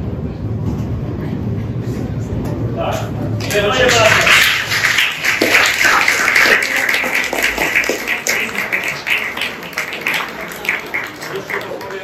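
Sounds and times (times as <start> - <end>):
audience applauding: 3.4 - 12.0.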